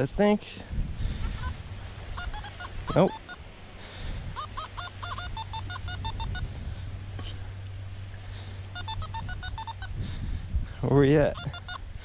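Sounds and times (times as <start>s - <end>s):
metal detector beeping: 2.2s - 3.4s, 4.4s - 6.5s, 8.7s - 10.0s, 11.4s - 11.8s.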